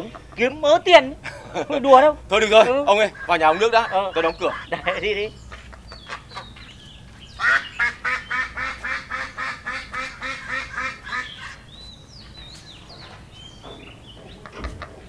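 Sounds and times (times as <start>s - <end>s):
ducks quacking: 0.0s - 11.8s.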